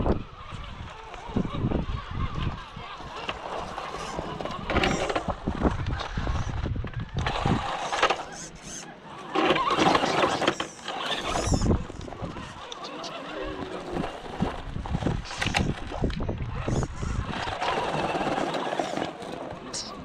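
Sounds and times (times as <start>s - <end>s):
wind rumble on microphone: 0.0s - 8.3s, 11.0s - 18.6s
electric motor whining: 0.0s - 19.9s.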